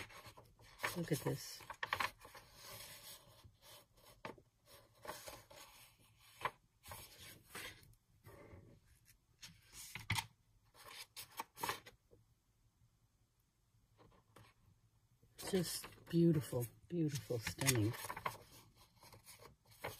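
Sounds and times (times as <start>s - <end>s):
paper pages rustling: 0.0s - 7.9s, 9.0s - 12.0s, 15.4s - 19.9s.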